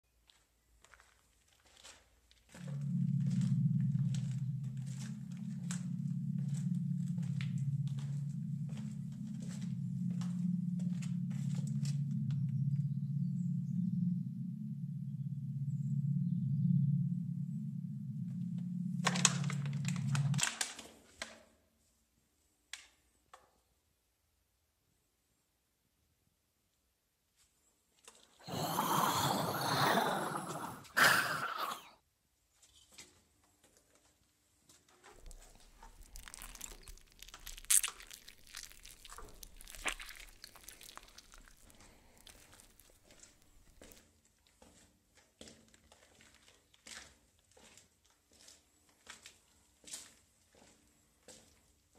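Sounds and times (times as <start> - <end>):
low steady hum: 2.6 - 20.4
sharp clicks and crackles: 35.2 - 43.9
crunching and rustling: 35.2 - 44.0.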